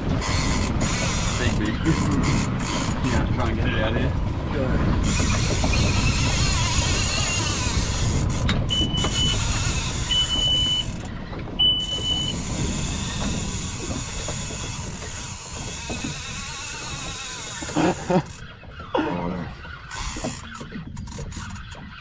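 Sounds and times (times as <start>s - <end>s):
outboard motor running: 0.0s - 22.0s
wind and water rushing: 0.0s - 22.0s
short high beeps: 11.6s - 12.3s.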